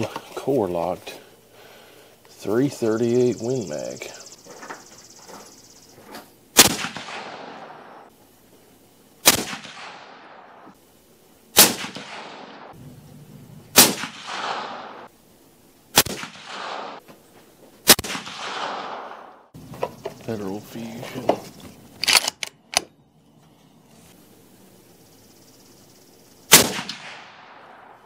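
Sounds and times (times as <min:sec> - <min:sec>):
gunshot echo: 0:06.6 - 0:08.0, 0:09.2 - 0:10.7, 0:11.6 - 0:12.8, 0:13.7 - 0:15.1, 0:16.0 - 0:17.0, 0:17.8 - 0:19.4, 0:26.5 - 0:28.0
suppressed rifle shots: 0:06.6 - 0:08.1, 0:09.2 - 0:10.7, 0:11.6 - 0:12.8, 0:13.7 - 0:15.1, 0:15.9 - 0:17.0, 0:17.8 - 0:19.4, 0:26.5 - 0:28.0.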